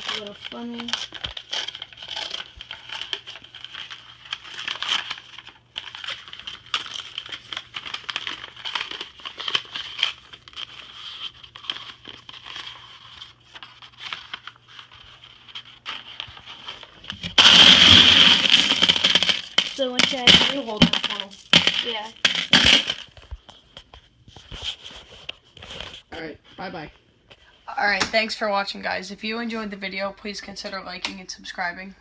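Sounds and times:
paper rustling and crinkling: 0.0s - 17.4s, 23.2s - 26.1s
coins clattering in plastic bucket: 17.3s - 23.2s.

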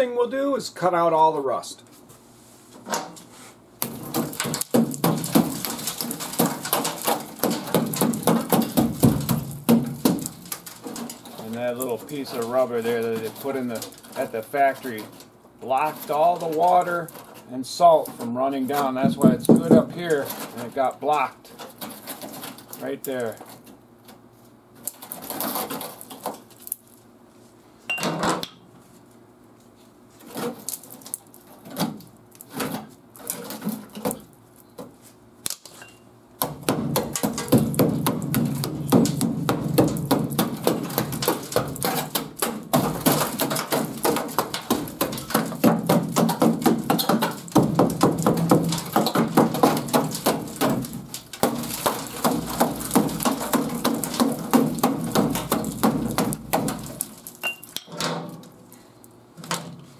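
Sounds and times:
sheet metal tearing and scraping: 2.8s - 23.7s, 24.8s - 26.7s, 36.9s - 58.6s
hammer striking metal panel: 36.4s - 57.0s.

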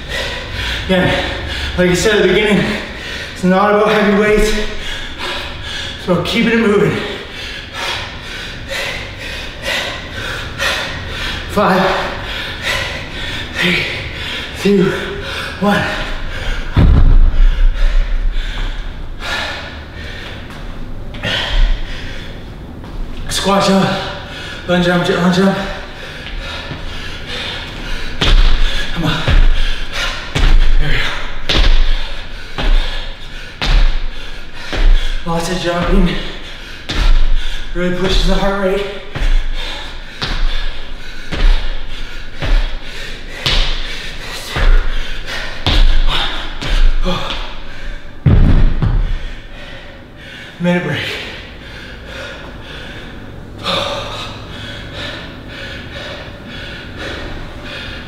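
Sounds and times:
man panting hard: 0.0s - 58.0s
dumbbells thudding on floor: 16.7s - 17.6s, 48.2s - 49.2s
feet thudding on gym floor: 16.8s - 17.7s, 28.2s - 29.7s, 30.3s - 33.0s, 36.9s - 37.4s, 40.2s - 40.7s, 41.3s - 41.8s, 42.4s - 44.0s, 45.6s - 47.6s, 48.2s - 49.3s.

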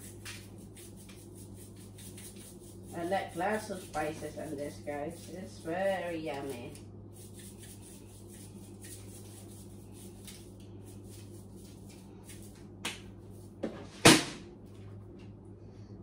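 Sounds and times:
spice shaker rattling: 0.0s - 2.9s, 6.4s - 12.6s.

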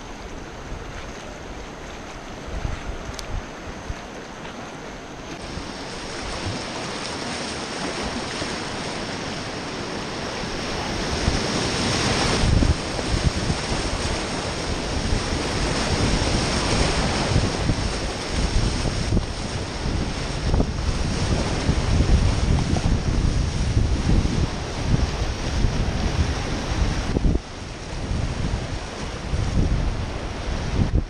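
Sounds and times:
whitewater rapids rushing: 0.0s - 31.0s
wind buffeting microphone: 0.0s - 31.0s.

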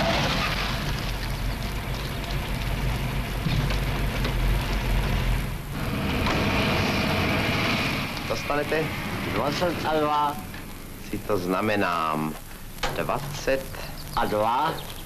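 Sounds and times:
car engine running: 0.0s - 11.0s
heavy hiss: 2.8s - 15.0s.

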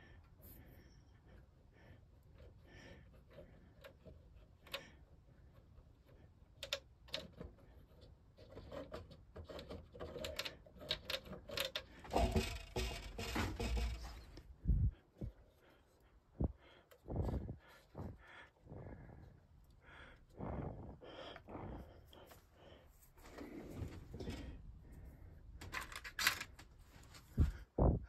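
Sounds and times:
small wooden parts clicking: 2.3s - 14.5s, 25.6s - 26.8s
close rustling with low rumble: 12.2s - 28.0s.

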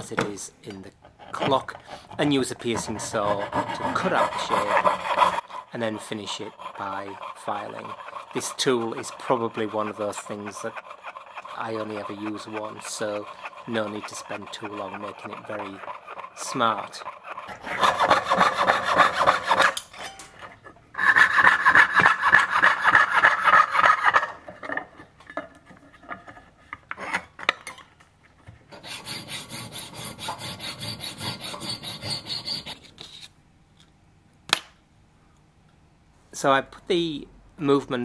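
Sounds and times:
file rasping on brass: 1.0s - 19.8s, 21.0s - 24.5s, 28.7s - 32.9s
saw cutting brass: 1.1s - 20.3s, 21.0s - 24.4s, 28.8s - 32.8s.

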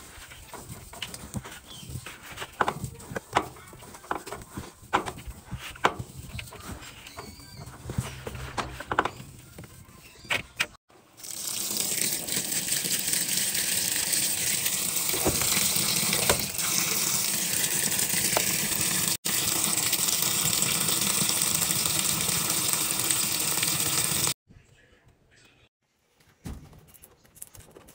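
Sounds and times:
water gushing onto laundry: 11.1s - 24.4s.

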